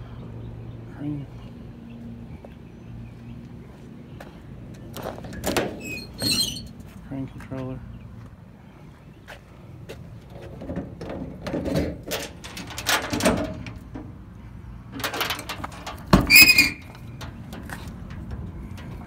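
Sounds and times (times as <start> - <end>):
handling knocks and rustles on metal: 4.8 - 7.0, 9.9 - 14.2, 14.8 - 19.0
short high squeak: 5.8 - 6.7, 16.3 - 16.9
loud metal clunk: 10.6 - 14.2, 15.0 - 19.0.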